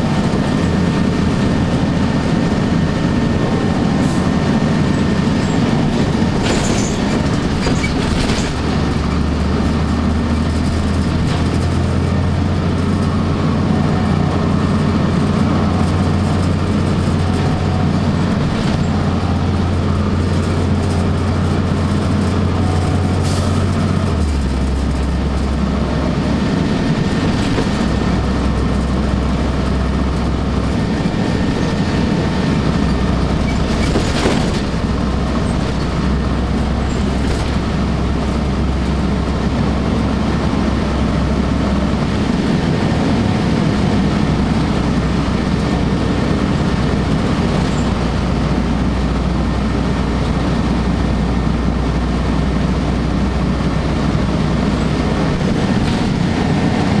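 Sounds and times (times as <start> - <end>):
bus body rattles: 0.0 - 57.0
bus diesel engine drone: 0.0 - 57.0
road noise: 0.0 - 57.0.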